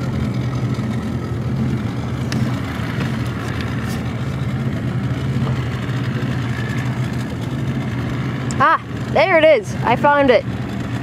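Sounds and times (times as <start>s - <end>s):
motorboat engine idling: 0.0s - 11.0s.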